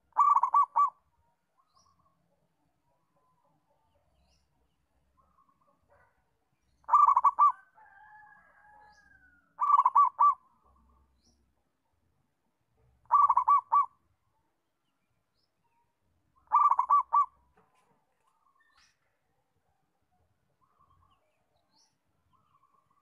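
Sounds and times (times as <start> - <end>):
dove cooing: 0.0 - 1.0, 6.8 - 7.8, 9.6 - 10.4, 13.0 - 14.0, 16.5 - 17.4.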